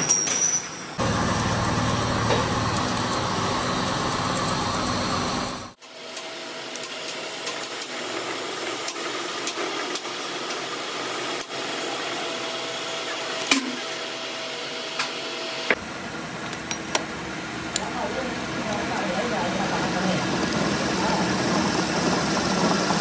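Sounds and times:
metal lathe machining: 1.0s - 23.0s
sharp metallic clicks: 1.3s - 5.6s.

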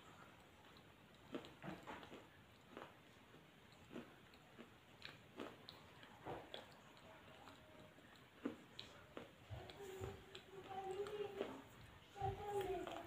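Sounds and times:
person chewing: 0.0s - 13.0s
mouth clicks and smacks: 0.4s - 10.5s.

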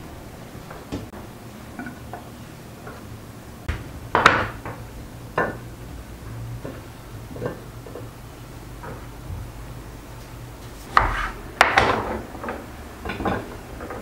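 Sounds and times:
low steady hum: 0.0s - 14.0s
plates clinking: 11.0s - 14.0s.

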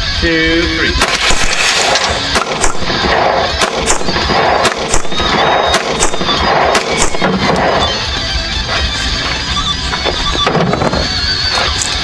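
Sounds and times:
sharp cracks: 1.0s - 8.1s.

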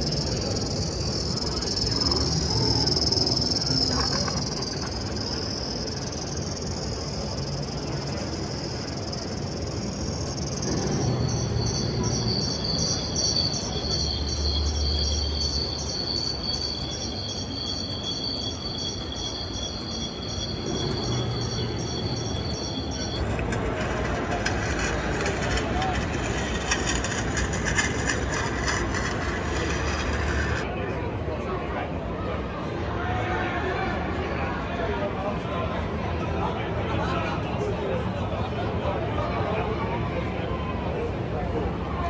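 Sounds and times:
recorded insect chirring: 0.0s - 23.2s
low exhibition hall noise: 0.0s - 42.0s.

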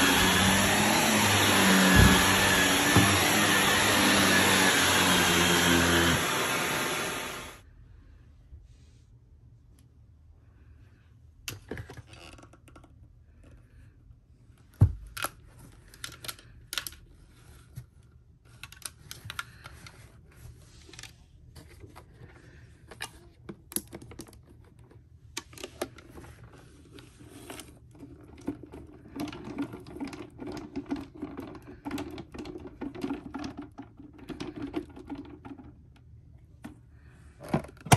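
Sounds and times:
plastic rattling: 27.4s - 36.2s
hard plastic clicking and clattering: 27.8s - 36.8s.

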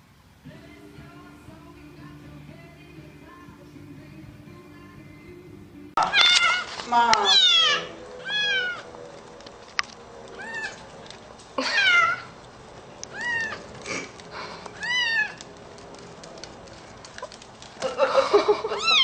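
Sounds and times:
kitten mewing: 11.6s - 12.3s, 13.1s - 14.1s, 14.8s - 15.4s, 18.7s - 19.0s.

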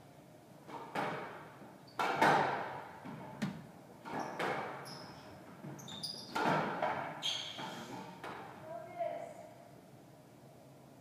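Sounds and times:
squash ball hits echoing: 2.0s - 2.9s, 6.3s - 7.2s
shoe squeaks on court floor: 4.1s - 6.4s, 7.2s - 7.9s.

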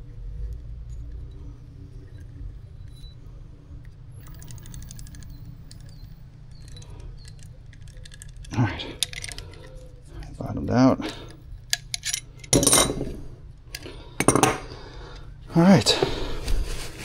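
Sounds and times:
steady low hum: 0.0s - 17.0s
metallic clicking and rattling: 4.2s - 10.4s, 11.0s - 13.1s.

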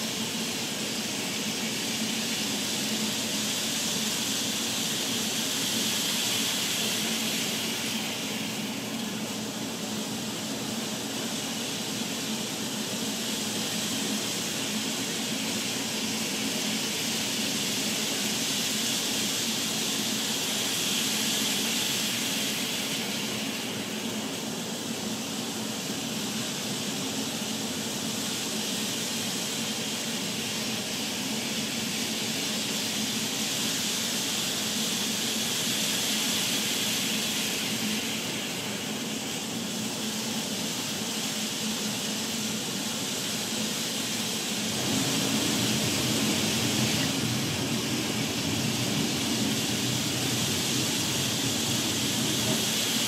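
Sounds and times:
hiss of wheels on rail: 0.0s - 53.0s
model train motor hum: 27.6s - 53.0s.

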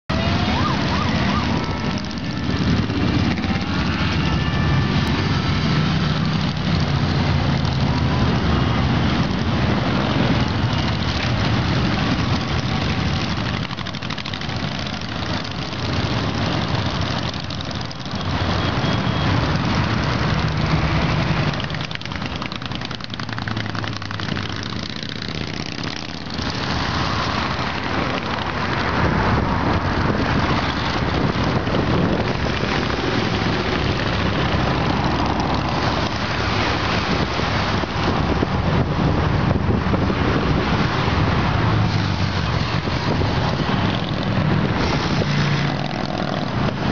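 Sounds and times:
motorcycles riding past: 0.1s - 46.9s.

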